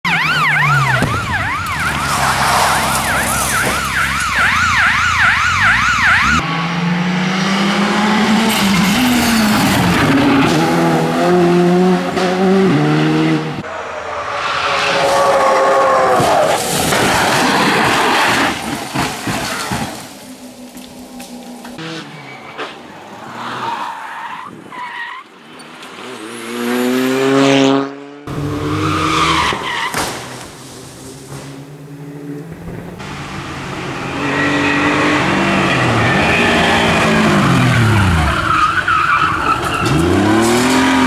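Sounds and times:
siren-like wailing tone: 0:00.0 - 0:06.5, 0:13.7 - 0:16.6.

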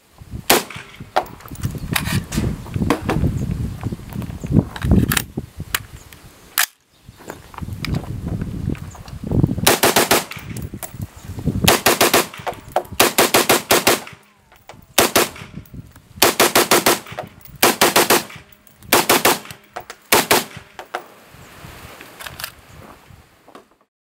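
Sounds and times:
rifle shots in quick strings: 0:00.5 - 0:01.1, 0:09.7 - 0:10.6, 0:11.7 - 0:14.2, 0:15.0 - 0:15.6, 0:16.2 - 0:20.8.

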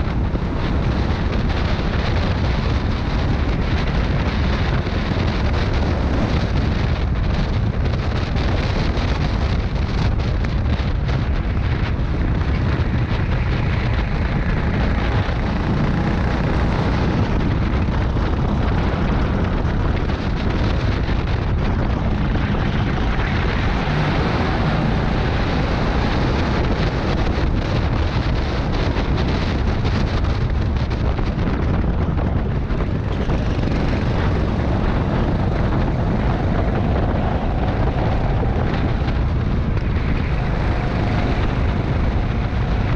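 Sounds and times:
go-kart engine rumble: 0:00.0 - 0:42.9
wind buffeting microphone: 0:00.0 - 0:42.9.

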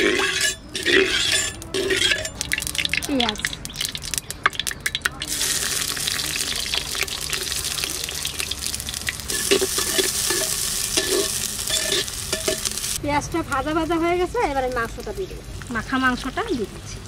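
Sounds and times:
metal spatula scraping clay pot: 0:00.0 - 0:03.0, 0:09.3 - 0:12.8
onions sizzling in hot oil: 0:00.0 - 0:17.0.

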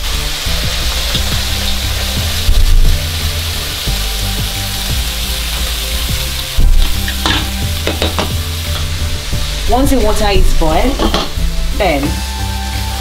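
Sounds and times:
chicken sizzling in hot oil: 0:00.0 - 0:13.0
low thuds: 0:02.2 - 0:03.2, 0:06.4 - 0:11.7.

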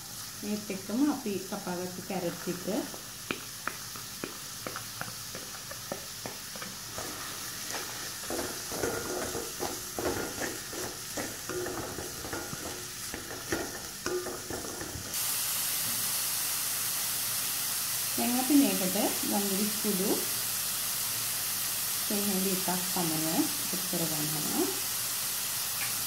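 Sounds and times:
food sizzling in oil: 0:00.0 - 0:26.0
spatula scraping a metal pan: 0:06.5 - 0:15.1.

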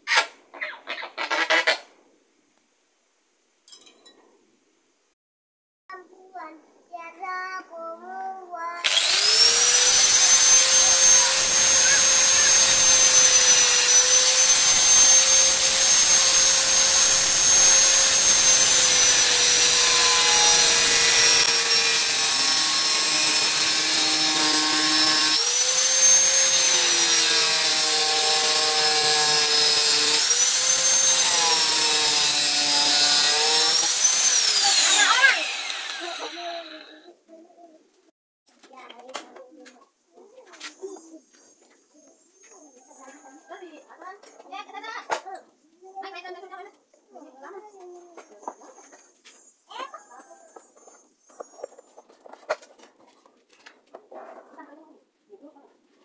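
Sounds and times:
angle grinder cutting pipe: 0:08.8 - 0:37.0.

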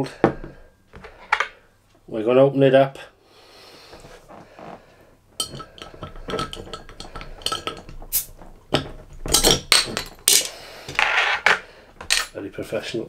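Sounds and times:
bottle cap rasping off: 0:05.4 - 0:08.4.

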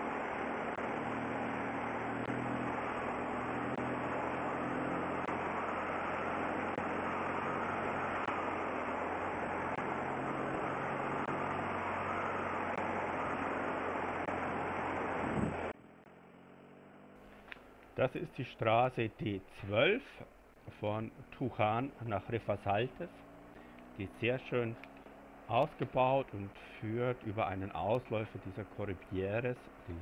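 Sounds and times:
motorcycle engine running: 0:00.0 - 0:17.7.

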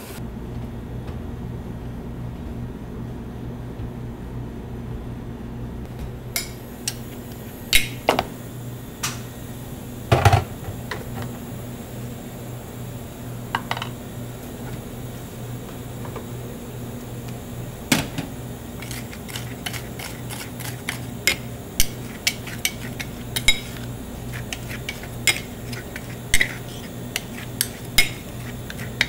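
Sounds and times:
metal scoops clinking on stone plate: 0:18.8 - 0:29.0.

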